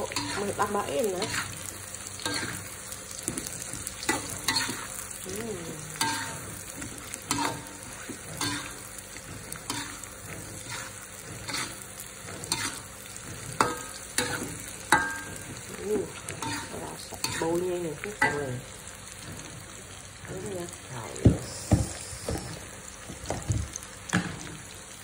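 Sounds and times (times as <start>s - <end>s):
metal spatula scraping a wok: 0.0s - 1.6s, 2.2s - 2.7s, 4.0s - 5.0s, 6.0s - 15.7s, 16.3s - 17.6s
food sizzling in hot oil: 0.0s - 25.0s.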